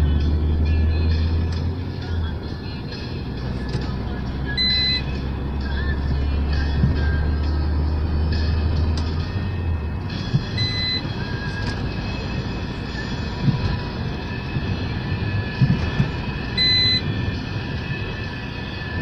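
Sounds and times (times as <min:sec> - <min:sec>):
road noise and engine rumble: 0:00.0 - 0:19.0
short high electronic beeps: 0:04.5 - 0:05.1, 0:10.6 - 0:11.0, 0:16.6 - 0:17.0
low thumps from the road: 0:06.1 - 0:07.2, 0:10.1 - 0:11.8, 0:13.3 - 0:13.9, 0:15.5 - 0:16.2.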